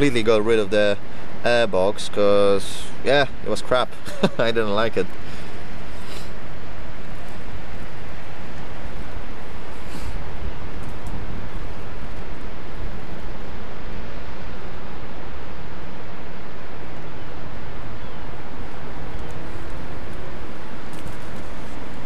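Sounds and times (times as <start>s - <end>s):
wind buffeting microphone: 5.2s - 22.0s.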